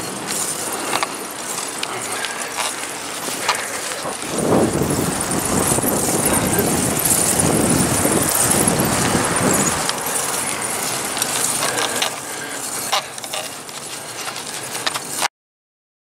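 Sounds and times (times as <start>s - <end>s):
bicycle riding hiss: 0.0s - 15.3s
bike rattles and clicks: 0.0s - 15.3s
wind on microphone: 3.4s - 12.0s
vehicle driving past: 4.1s - 12.7s.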